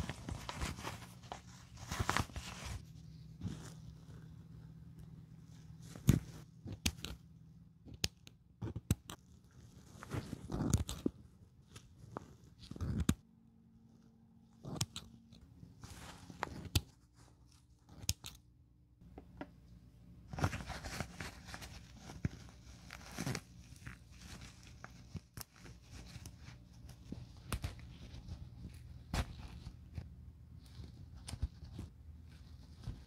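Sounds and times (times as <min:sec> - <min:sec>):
scissors snipping stitching: 0:14.5 - 0:15.4, 0:17.8 - 0:18.4.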